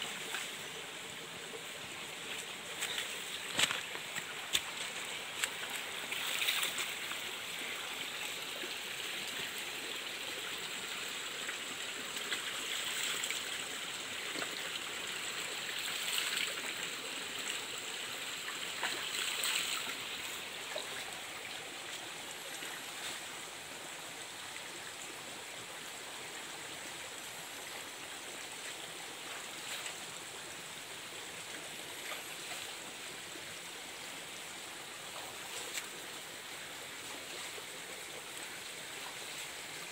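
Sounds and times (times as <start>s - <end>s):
stream water rushing: 0.0s - 39.9s
water splashes: 1.6s - 9.6s, 15.6s - 23.4s.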